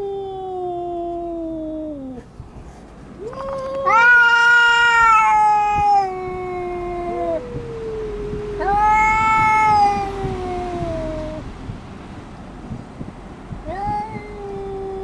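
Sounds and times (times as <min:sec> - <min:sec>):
cats yowling: 0:03.2 - 0:11.4, 0:13.6 - 0:15.0.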